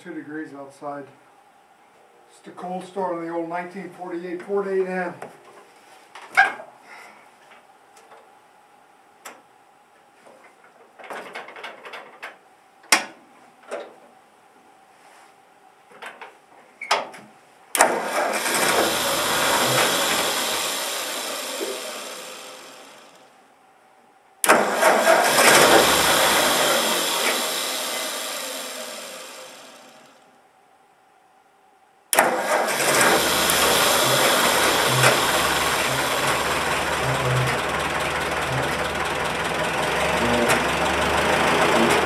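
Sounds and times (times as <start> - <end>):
tractor engine start attempts: 17.8 - 23.2, 24.4 - 30.0, 32.2 - 42.0.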